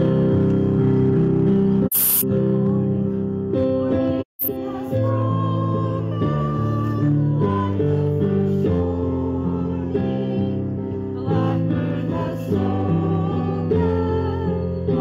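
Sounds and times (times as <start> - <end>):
congregation singing a hymn: 4.6 - 15.0.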